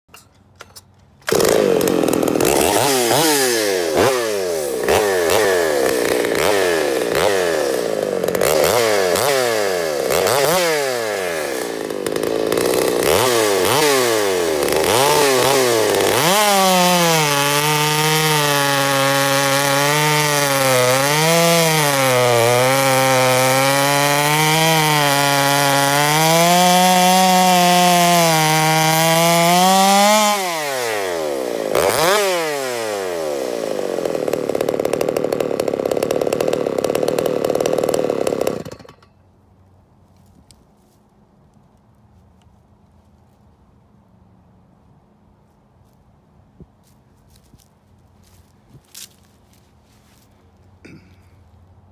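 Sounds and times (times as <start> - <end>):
chainsaw cutting through log: 0.6 - 39.2, 47.4 - 51.4
chainsaw revving: 1.2 - 39.2, 50.1 - 51.4.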